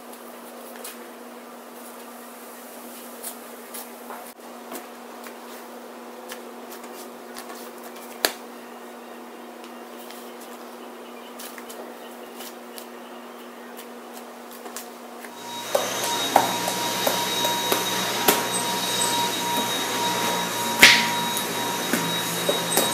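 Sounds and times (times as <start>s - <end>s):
steady low hum: 15.4s - 22.9s.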